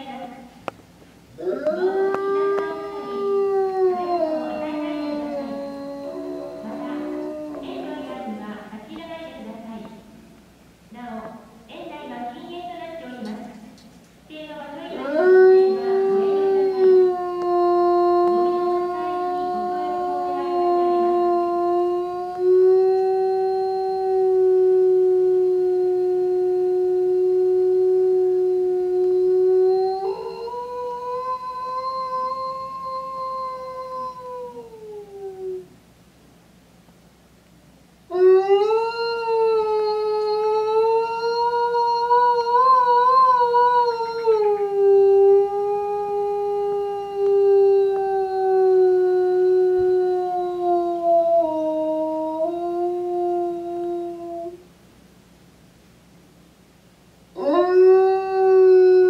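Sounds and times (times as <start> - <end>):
wolf howling: 1.4 - 8.4, 14.9 - 35.7, 38.1 - 54.6, 57.4 - 59.0.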